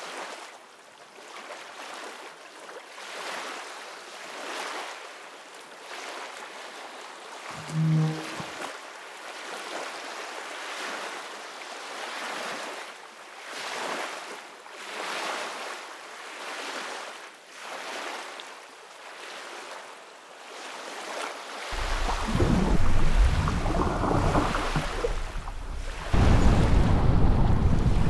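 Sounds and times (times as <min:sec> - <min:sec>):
ocean waves washing: 0:07.4 - 0:08.6, 0:21.7 - 0:28.0.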